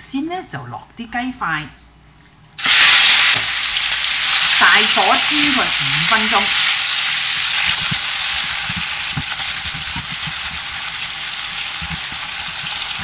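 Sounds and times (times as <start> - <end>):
chicken sizzling in oil: 2.6 - 13.0
spatula tapping pan: 7.4 - 13.0.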